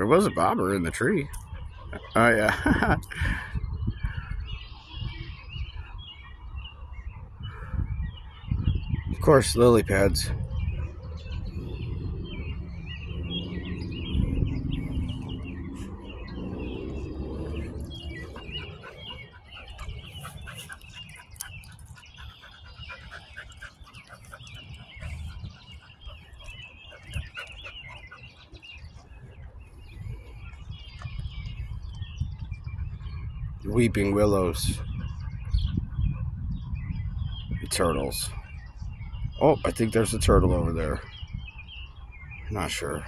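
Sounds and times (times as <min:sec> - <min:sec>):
birds chirping: 0:00.0 - 0:43.0
low rumble: 0:10.3 - 0:28.0.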